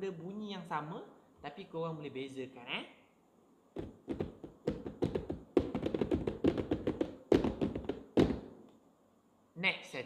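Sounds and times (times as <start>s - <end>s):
fingertips tapping on cardboard box: 3.8s - 8.5s.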